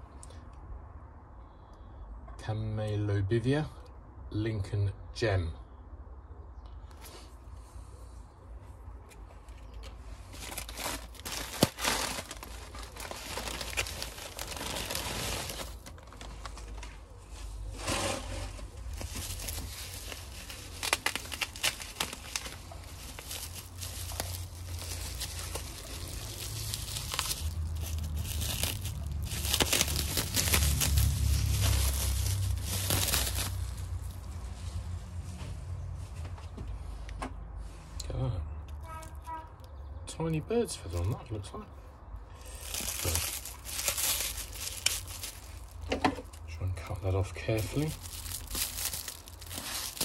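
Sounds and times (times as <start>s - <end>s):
bubble wrap crinkling: 9.3s - 34.5s, 42.4s - 50.0s.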